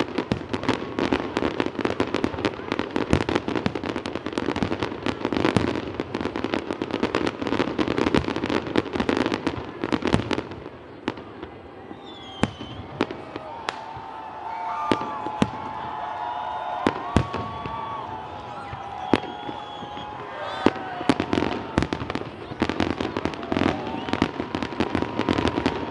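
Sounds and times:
fireworks crackling and bangs: 0.0 - 25.9.

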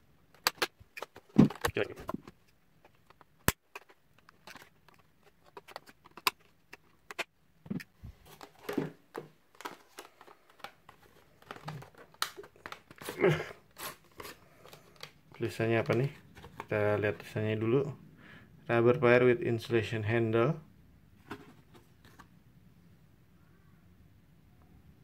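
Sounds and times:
packaging rustling and crinkling: 8.0 - 16.7.

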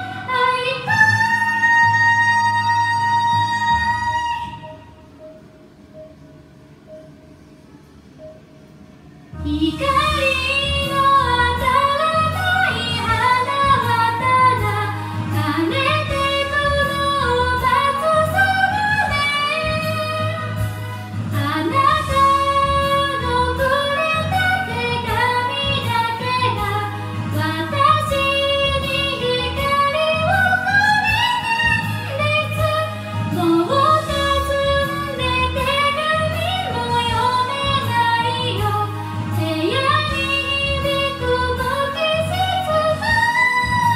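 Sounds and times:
woman singing into microphone: 0.0 - 4.9, 9.4 - 43.9
backing track with bass and beat: 9.4 - 43.9.

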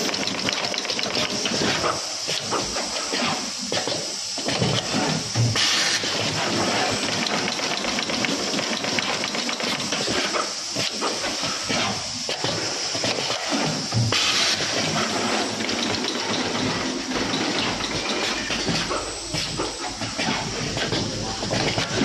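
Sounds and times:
machine clattering: 0.0 - 2.0, 5.6 - 11.4, 13.0 - 22.0.

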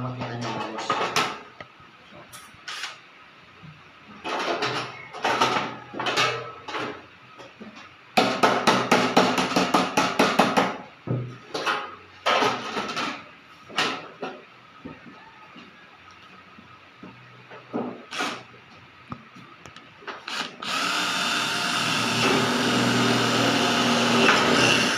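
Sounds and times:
rapid knocks on metal: 8.2 - 10.8.

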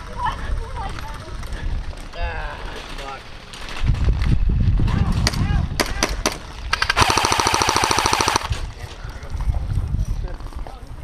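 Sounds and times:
wind noise on microphone: 3.3 - 11.0
airsoft rifle full-auto burst: 6.7 - 8.5.

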